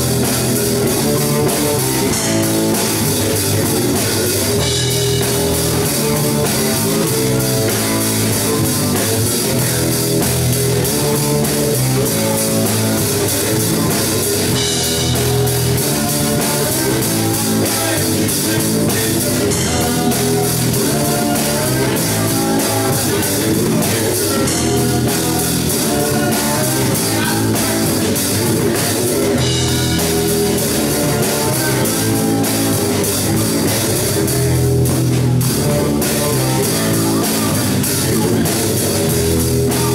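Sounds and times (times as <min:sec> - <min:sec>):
bass guitar: 0:00.0 - 0:39.9
drum kit: 0:00.0 - 0:39.9
electric guitar: 0:00.0 - 0:39.9.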